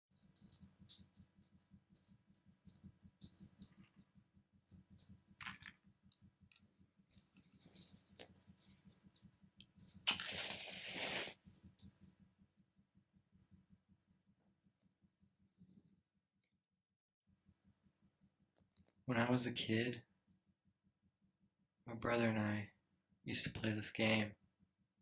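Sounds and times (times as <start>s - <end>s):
high chime-like pings: 0.1s - 5.8s, 7.6s - 12.2s.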